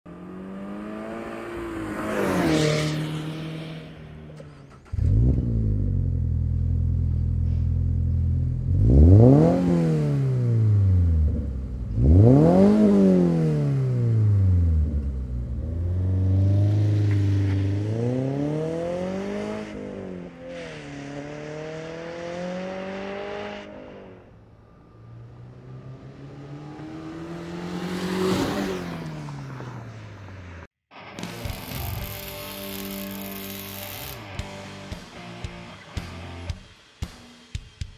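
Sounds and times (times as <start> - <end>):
car engine idling and revving: 0.0 - 35.1
car driving past: 0.1 - 5.5, 13.8 - 30.7.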